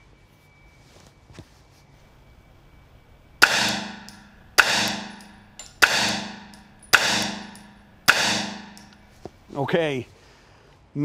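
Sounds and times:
gunshots echoing indoors: 0:02.1 - 0:09.2.

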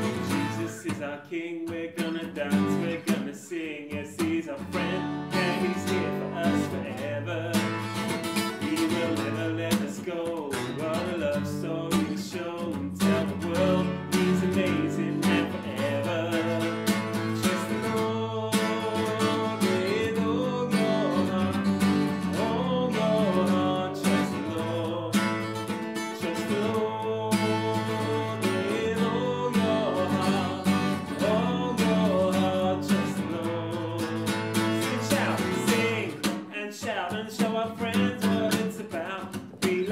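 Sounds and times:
strummed acoustic guitar: 0:00.0 - 0:39.9
children's worship song singing: 0:26.4 - 0:33.8.

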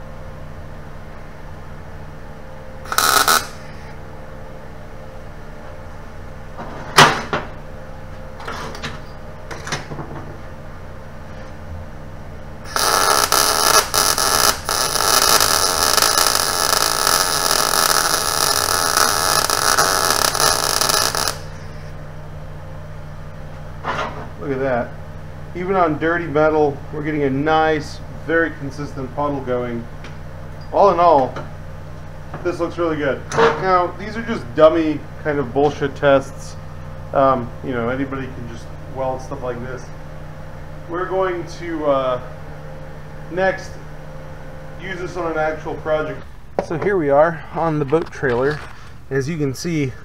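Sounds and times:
steady low hum: 0:00.0 - 0:50.0
welder arc crackling: 0:02.8 - 0:03.8, 0:12.7 - 0:21.8.

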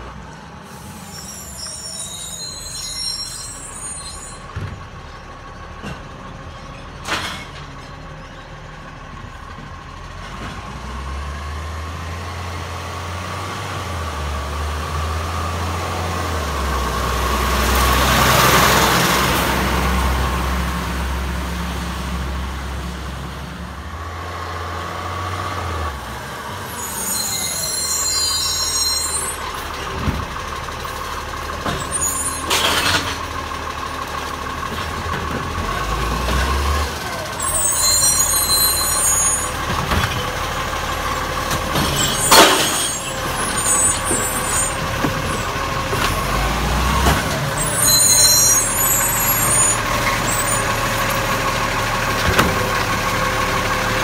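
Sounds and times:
garbage truck diesel engine: 0:00.0 - 0:54.0
air brakes hissing: 0:00.6 - 0:04.5, 0:26.6 - 0:29.5.

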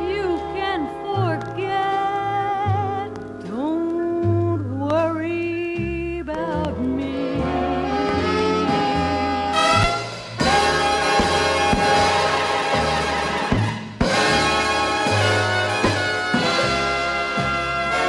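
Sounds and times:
pulsing bass: 0:02.3 - 0:17.9
brass section playing: 0:07.3 - 0:18.0.

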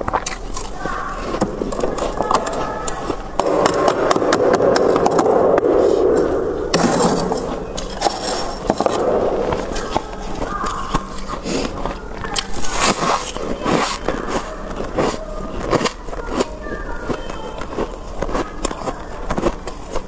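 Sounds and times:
metal spoon scraping frost: 0:05.7 - 0:16.0.

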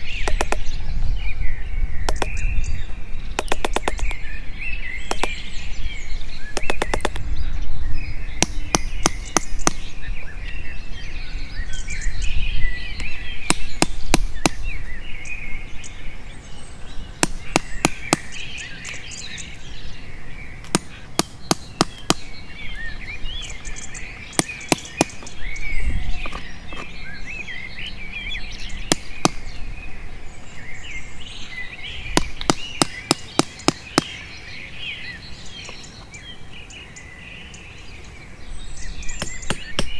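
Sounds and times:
birds chirping: 0:00.0 - 0:39.9
chisel struck into wood: 0:03.4 - 0:04.1, 0:06.6 - 0:07.2, 0:08.4 - 0:09.9, 0:17.2 - 0:18.3, 0:20.7 - 0:22.3, 0:24.4 - 0:25.3, 0:32.2 - 0:34.2.

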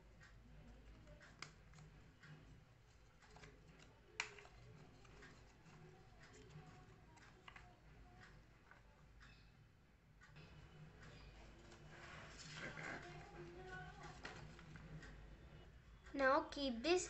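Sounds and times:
paper crackling: 0:11.6 - 0:14.8.

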